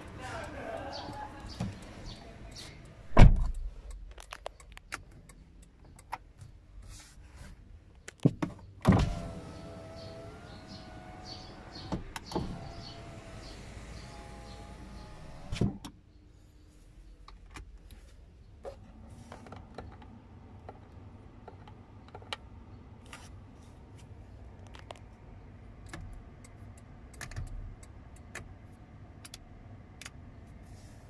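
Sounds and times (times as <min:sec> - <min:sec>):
power window thump: 0:03.1 - 0:03.5, 0:08.9 - 0:15.8.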